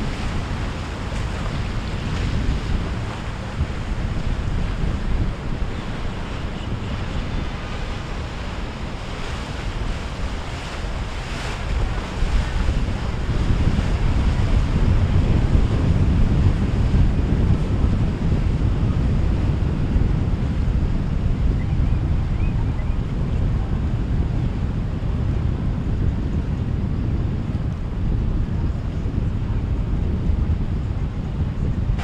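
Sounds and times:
boat wake water washing: 0:00.0 - 0:32.0
wind noise on microphone: 0:00.0 - 0:32.0.

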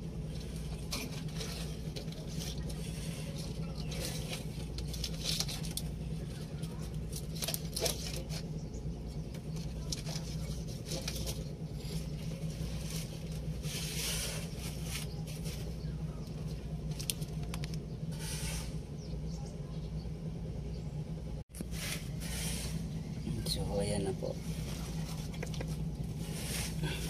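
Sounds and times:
steady low hum: 0:00.0 - 0:27.0
clicks and rustling of handling: 0:00.3 - 0:13.5, 0:14.5 - 0:17.8, 0:24.6 - 0:26.0.

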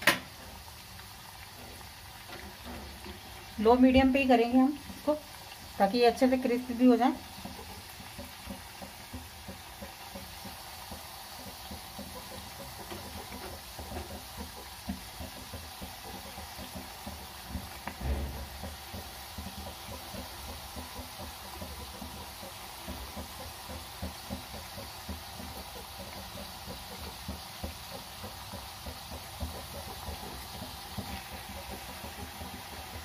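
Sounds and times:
oil sizzling and crackling: 0:00.0 - 0:33.0
low thump: 0:17.9 - 0:18.7.

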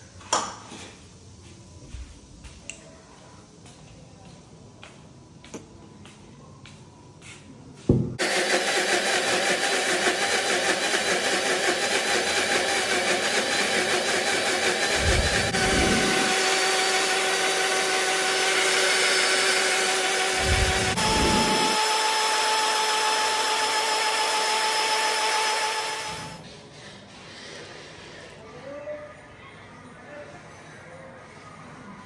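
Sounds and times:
mixer grinder running: 0:08.2 - 0:26.4.

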